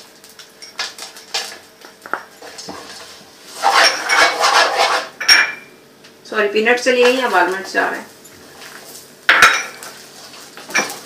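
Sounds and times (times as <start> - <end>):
spoon clinking and scraping pan: 3.6 - 5.7.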